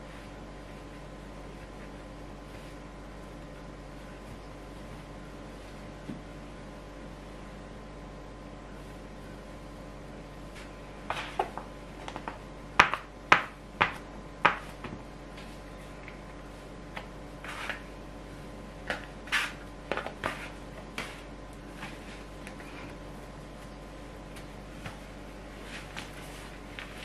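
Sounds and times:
dough knocking and slapping on wood: 10.6 - 15.1, 18.8 - 22.0
plastic dough scraper scraping: 18.9 - 21.2.

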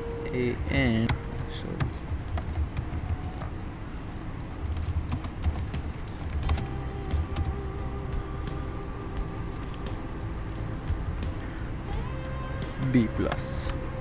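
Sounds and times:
background hum: 0.0 - 14.0
keyboard typing: 0.3 - 3.8, 4.4 - 8.6, 10.6 - 13.9.

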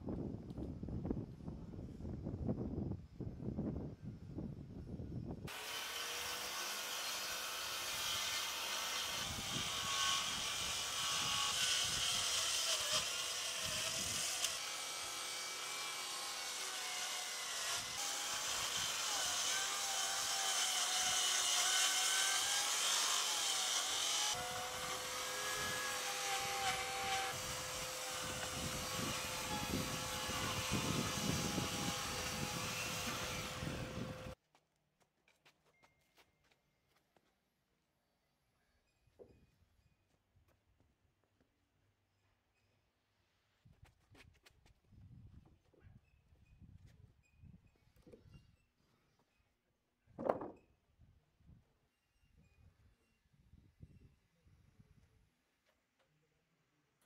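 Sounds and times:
circular saw cutting wood: 5.5 - 34.4.

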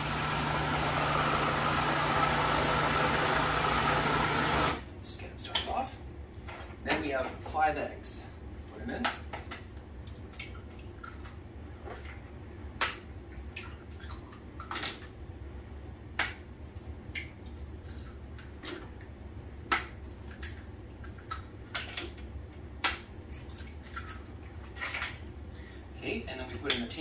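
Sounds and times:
low steady hum: 4.6 - 27.0.

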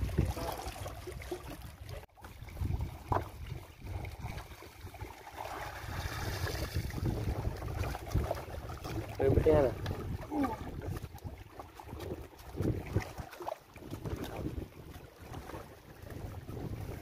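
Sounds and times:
water lapping against rocks: 0.0 - 17.0
wind rumbling on microphone: 0.0 - 17.0
water pouring from net bag: 5.4 - 7.0.

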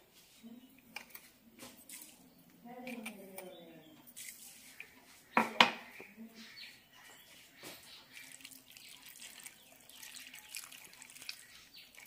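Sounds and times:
water pouring onto vegetables: 7.8 - 12.0.

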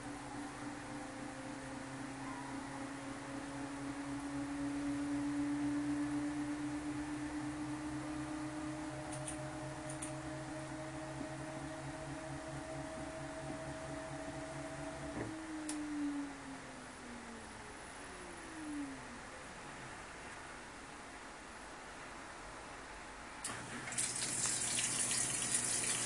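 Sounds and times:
washing machine motor whining: 0.0 - 17.6, 23.4 - 26.0.

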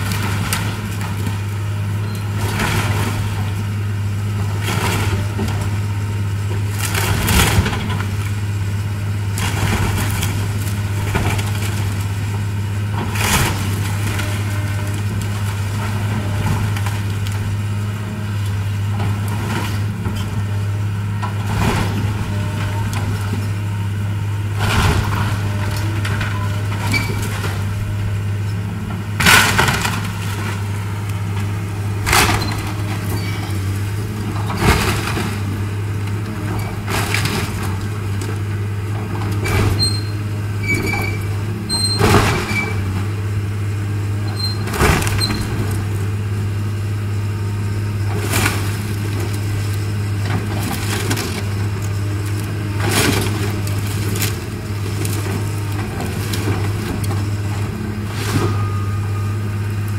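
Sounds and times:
excavator diesel engine running: 0.0 - 59.9
debris crashing: 21.3 - 23.6, 24.4 - 40.1, 47.8 - 59.2.

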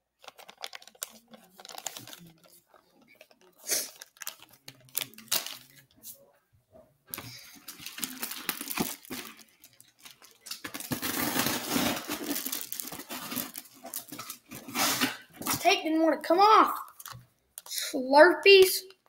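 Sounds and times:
plastic packaging crinkling: 0.1 - 6.0, 7.1 - 15.6, 16.9 - 17.7.

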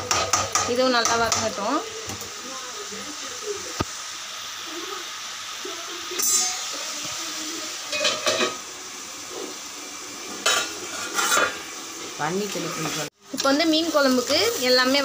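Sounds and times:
food frying sizzle: 0.0 - 15.0
pot lids clanking on pans: 6.2 - 6.8, 7.9 - 8.6, 10.4 - 11.7.

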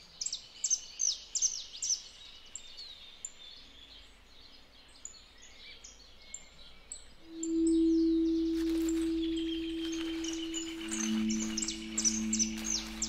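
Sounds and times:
faint outdoor hiss: 0.0 - 13.0
small birds chirping: 0.0 - 13.0
faint low hum: 6.2 - 13.0.

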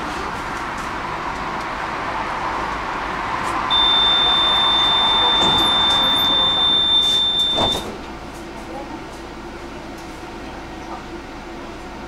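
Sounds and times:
tram interior noise: 0.0 - 12.0
high-pitched electronic buzzer tone: 3.7 - 7.9.

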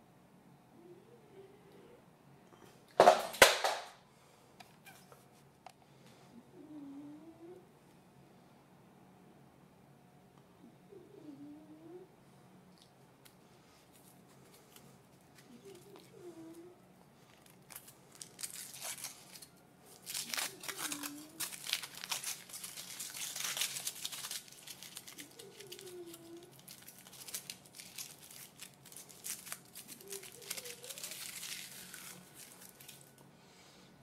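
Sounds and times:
foil wrapper crinkling: 17.2 - 33.2.

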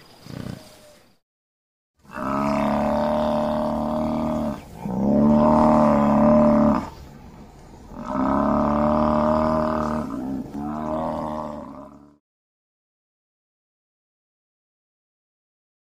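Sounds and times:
buffalo bellowing: 2.0 - 7.0, 7.9 - 12.2.

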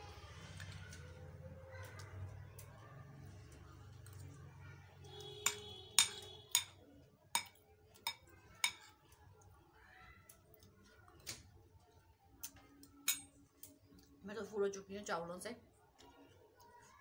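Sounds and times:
metal spoon clinking glass bowl: 5.4 - 6.8, 7.4 - 8.9, 13.0 - 13.4.

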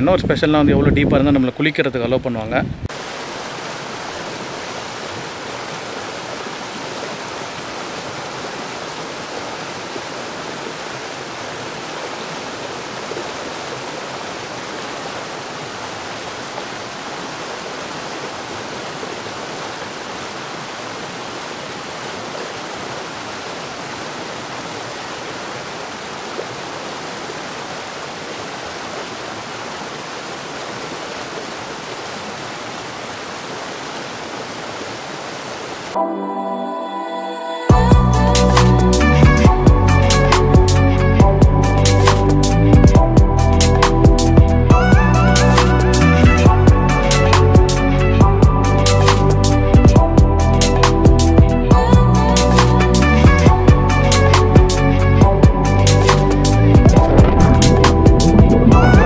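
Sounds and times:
stream and waterfall rushing: 2.9 - 36.0, 56.2 - 59.0.

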